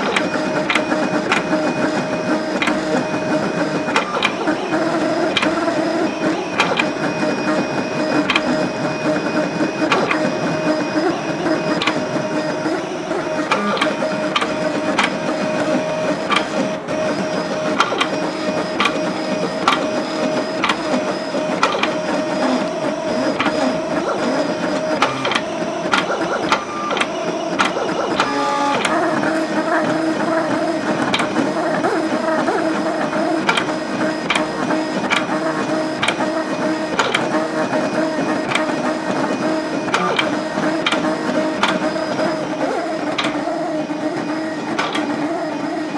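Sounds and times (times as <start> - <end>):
stepper motors whining: 0.0 - 45.9
sharp mechanical clicks: 3.8 - 4.6, 8.2 - 8.6, 16.2 - 16.6, 17.7 - 18.2, 18.8 - 20.0, 20.6 - 21.0, 24.8 - 29.0, 36.0 - 36.3.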